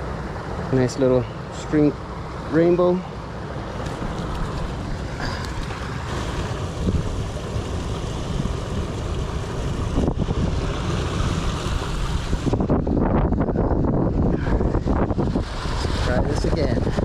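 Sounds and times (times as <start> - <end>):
stream running over stones: 0.6 - 13.0
wind buffeting microphone: 3.8 - 17.0.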